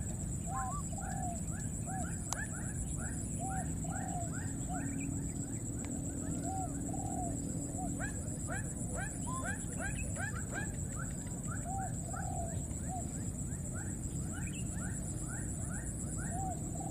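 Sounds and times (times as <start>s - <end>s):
steady high whine: 0.0s - 16.9s.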